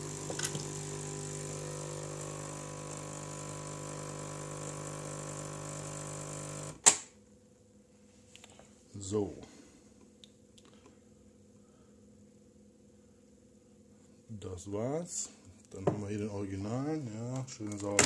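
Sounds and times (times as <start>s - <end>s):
coffee machine pump humming: 0.0s - 6.8s.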